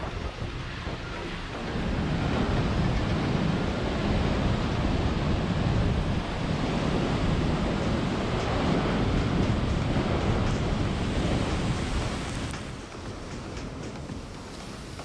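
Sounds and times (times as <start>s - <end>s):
wind buffeting microphone: 0.0s - 15.0s
waterfall rushing: 3.2s - 15.0s.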